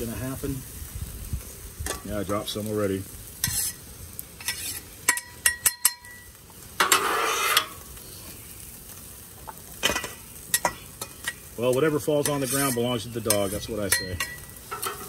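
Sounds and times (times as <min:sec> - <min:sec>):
faint sizzling: 0:00.0 - 0:15.0
spatula scraping griddle: 0:01.3 - 0:08.3, 0:09.4 - 0:15.0
metal spatula clinking on bowl: 0:12.2 - 0:15.0.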